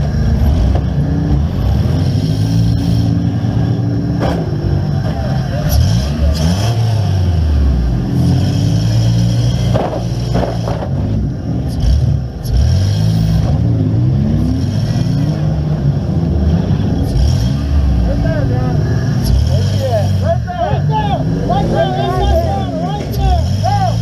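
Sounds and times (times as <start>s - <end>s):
van engine revving: 0.0s - 24.0s.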